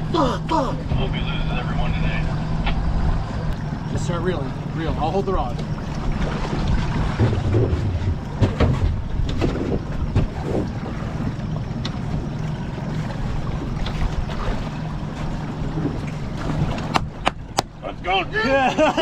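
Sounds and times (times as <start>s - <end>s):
boat motor running: 0.0s - 19.0s
wind on microphone: 5.8s - 17.6s.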